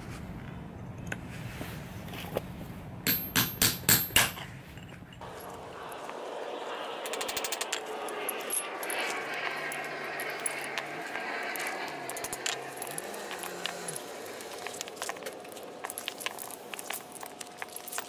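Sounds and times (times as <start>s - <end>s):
chisel hammered on metal: 3.1s - 4.4s.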